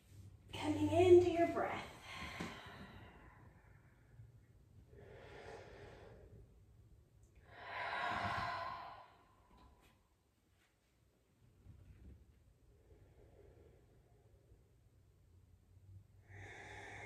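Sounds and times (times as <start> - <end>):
woman breathing deeply: 2.0 - 10.0, 16.2 - 17.0.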